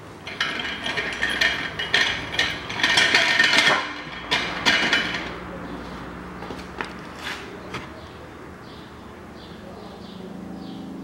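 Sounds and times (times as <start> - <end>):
metal scraping and clattering: 0.1 - 5.7.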